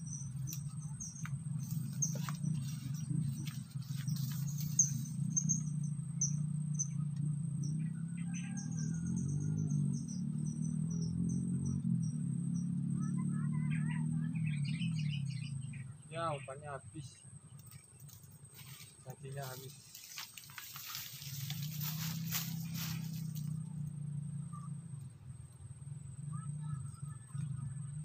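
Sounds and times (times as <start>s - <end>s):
insects chirping: 0.0s - 13.2s, 14.0s - 28.0s
low hum: 0.0s - 16.1s, 16.9s - 28.0s.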